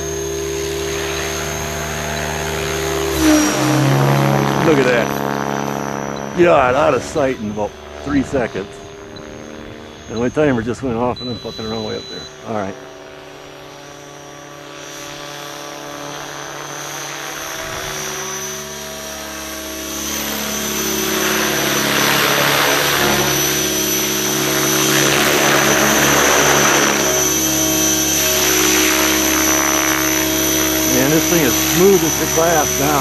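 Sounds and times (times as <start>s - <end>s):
electric motor whine: 0.0s - 33.0s
rotor blades whooshing: 0.2s - 10.8s.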